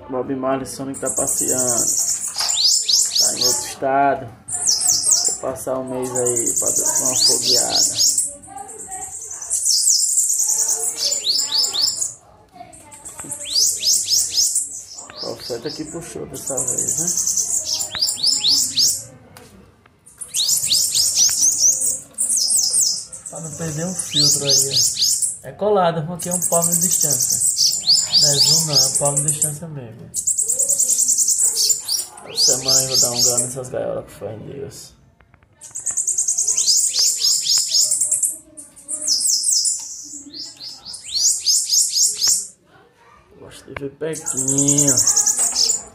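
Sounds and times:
bird singing high upward notes: 0.9 - 3.8, 4.5 - 12.2, 13.3 - 19.0, 20.1 - 25.4, 26.3 - 29.6, 35.6 - 42.6.

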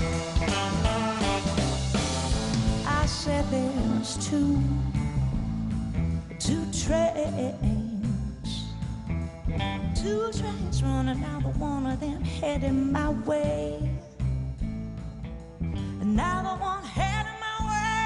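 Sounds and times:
drums with cymbal hits: 0.0 - 7.0
bass: 0.0 - 18.0
electric guitar lead: 0.0 - 18.0.

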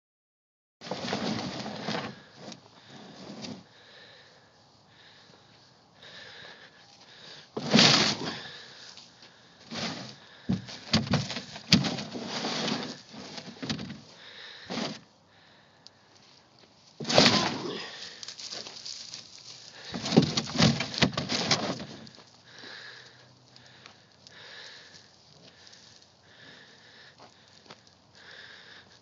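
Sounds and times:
bull scraping a water tank: 0.8 - 3.6, 7.6 - 8.5, 9.6 - 14.1, 14.7 - 15.1, 17.0 - 17.9, 19.8 - 22.2
bull blowing: 7.6 - 8.8, 17.0 - 18.2.

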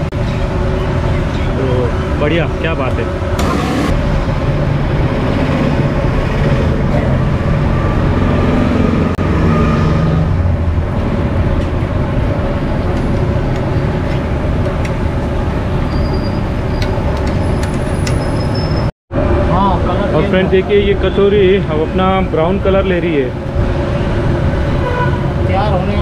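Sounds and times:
steady low rumble: 0.0 - 9.4.

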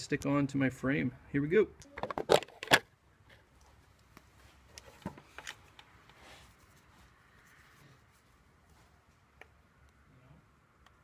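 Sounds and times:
soft rustle: 3.3 - 9.7.

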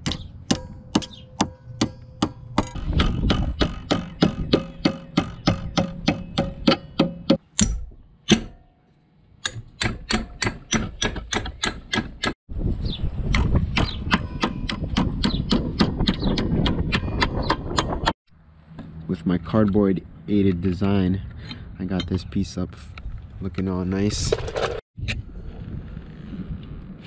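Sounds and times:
sledgehammer striking sheet metal: 0.0 - 8.7.

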